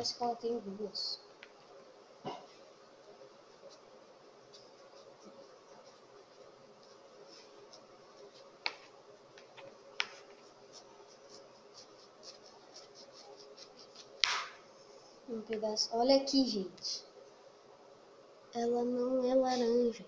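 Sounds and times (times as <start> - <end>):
fingers scratching orange rind: 10.0 - 14.4.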